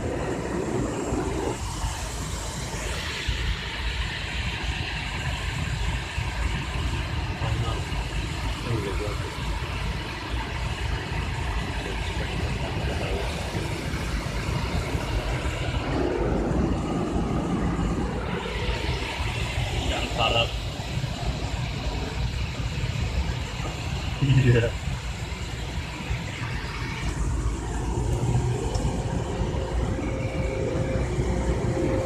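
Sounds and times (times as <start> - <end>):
car wash air dryers blowing: 0.0 - 32.0.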